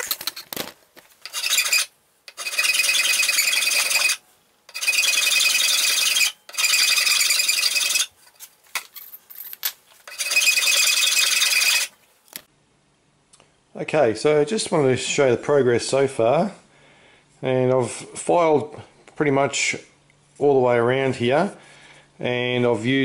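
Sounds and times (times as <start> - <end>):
hand file filing metal: 1.3 - 5.7.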